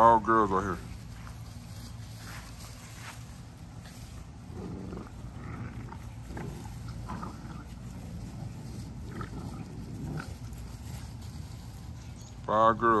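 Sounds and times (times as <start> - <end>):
puppies growling: 3.5 - 12.2.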